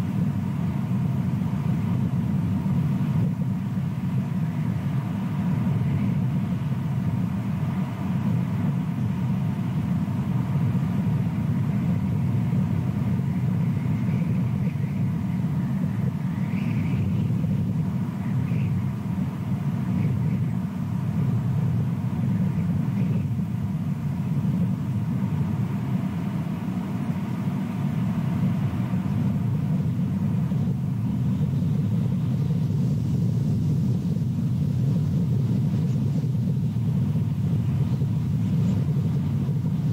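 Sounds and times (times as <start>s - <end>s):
steady low rumble: 0.0s - 39.9s.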